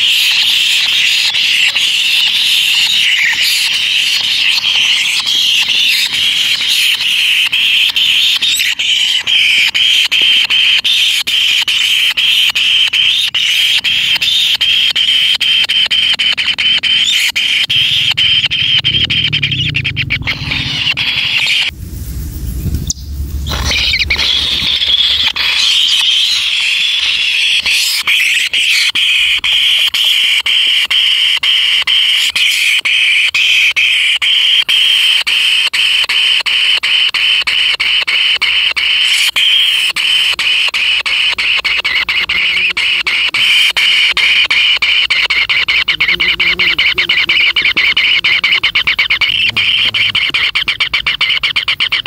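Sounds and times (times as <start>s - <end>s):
nestlings begging calls: 0.0s - 21.7s, 22.4s - 52.0s
low rumble: 17.7s - 25.4s.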